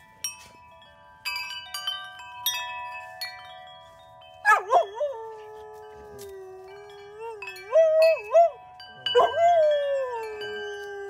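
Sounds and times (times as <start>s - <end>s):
metal wind chimes ringing: 0.0s - 11.0s
dog howling: 4.5s - 11.0s.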